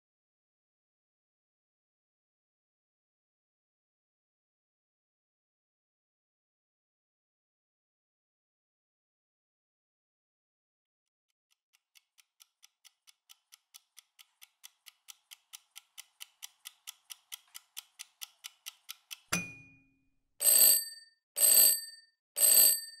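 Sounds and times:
kitchen timer ticking: 11.8 - 19.8
timer click: 12.0 - 19.7
loud alarm rings: 20.4 - 23.0.

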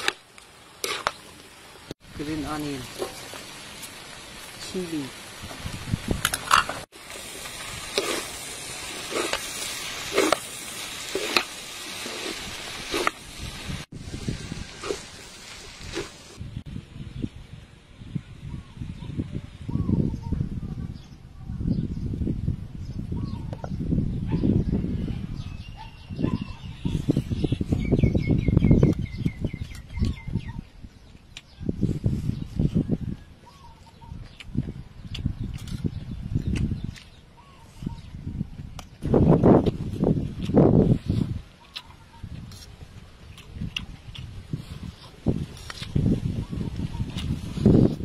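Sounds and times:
noodles sizzling in a pan: 6.9 - 16.4
bird chirping: 22.8 - 30.7.

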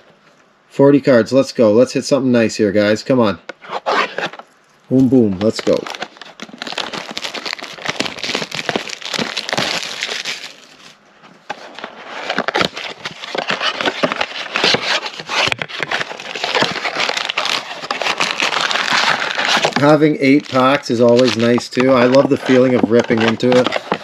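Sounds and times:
plastic wrapping crinkling: 3.8 - 24.0
cardboard box being torn open: 5.4 - 11.0, 11.6 - 24.0.

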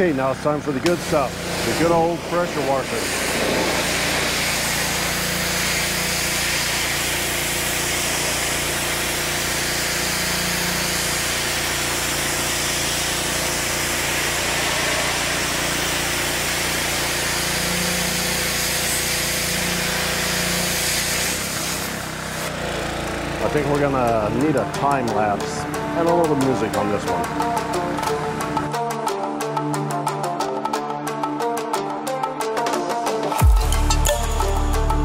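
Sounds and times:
pressure washer motor hum: 0.0 - 29.1
water spray hissing: 1.0 - 22.6.

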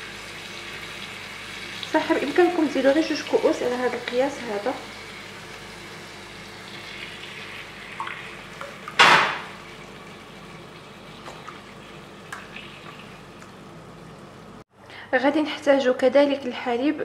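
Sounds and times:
food sizzling in a pot: 0.0 - 13.3.

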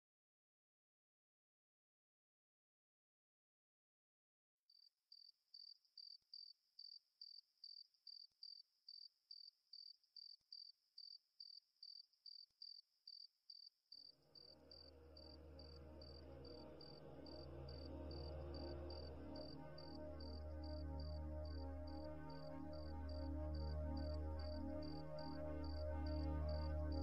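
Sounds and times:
cricket chirping: 4.8 - 27.0
low music drone: 14.3 - 27.0.

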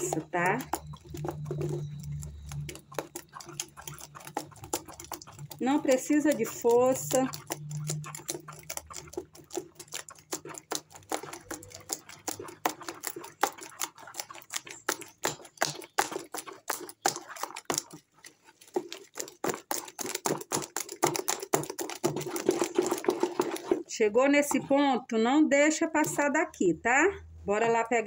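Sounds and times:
utensil clicking against container: 0.0 - 17.9.

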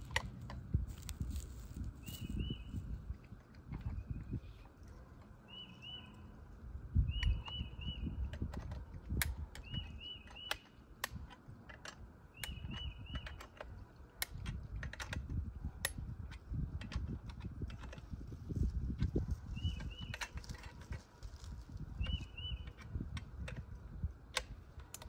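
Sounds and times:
sharp clicks and knocks: 0.0 - 1.4, 7.1 - 18.1, 22.0 - 25.0.

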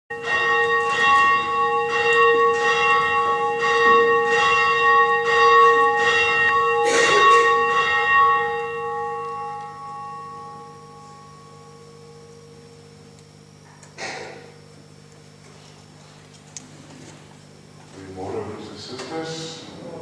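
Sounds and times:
church bell ringing: 0.1 - 13.6.

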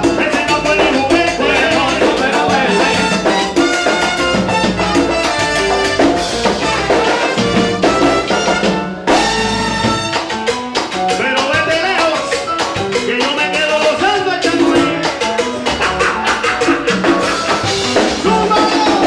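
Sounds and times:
percussion: 0.0 - 19.0
salsa band playing: 0.0 - 19.0
voices singing: 0.2 - 3.4.

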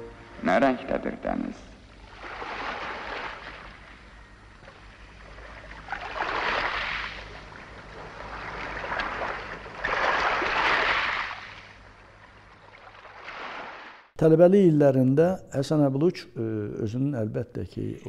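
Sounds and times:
faint low hum: 0.0 - 13.2, 14.2 - 18.0
sea waves washing in: 2.0 - 4.2, 5.1 - 11.9.

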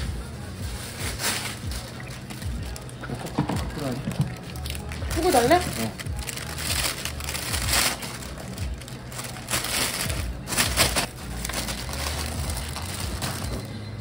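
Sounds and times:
plastic bag crinkling: 0.0 - 14.0.

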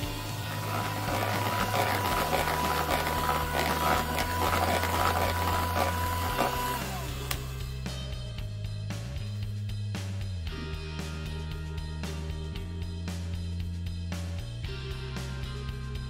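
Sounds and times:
batter churning: 0.0 - 7.3
electric hand mixer whine: 0.0 - 7.5.

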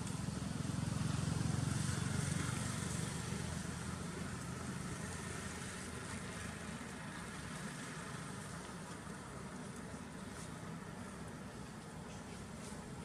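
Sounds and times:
engine droning: 0.0 - 13.0.

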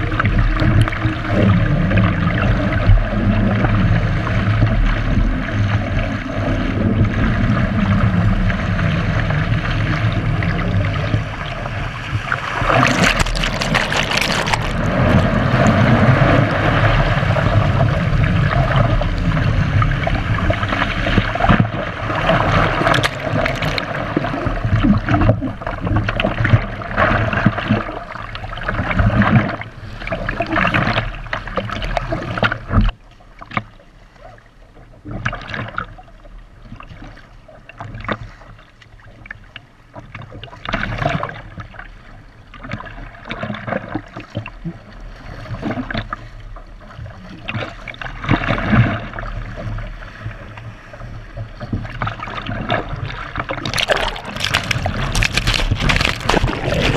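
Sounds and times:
water splashing against a hull: 0.0 - 56.9
paddle blades dipping: 11.2 - 16.0, 22.0 - 24.5, 53.4 - 56.9.

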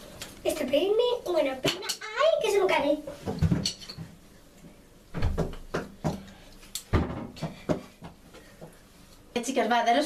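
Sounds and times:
objects knocking and clattering: 3.2 - 4.2, 6.9 - 8.2.

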